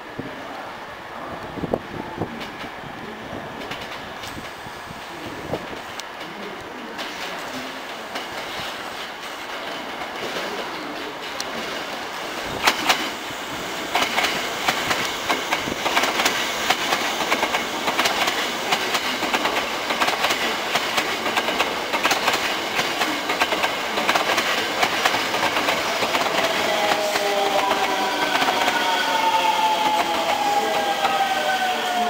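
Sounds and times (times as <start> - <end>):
train rumble: 0.0 - 32.0
train wheels clacking over joints: 5.6 - 31.2
train braking whine: 25.2 - 32.0.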